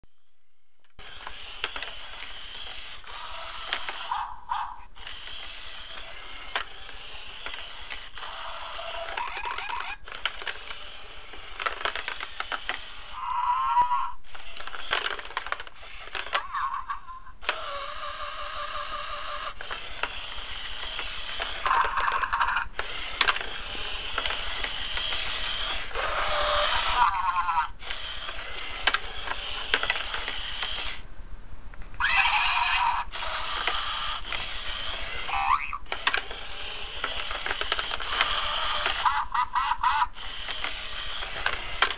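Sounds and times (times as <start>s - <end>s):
toy hamster motor running: 0.9s - 31.0s, 32.0s - 41.9s
electronic toy squeaks and chirps: 7.3s - 10.2s, 12.3s - 15.0s, 15.8s - 23.2s, 24.3s - 28.5s, 32.0s - 41.4s.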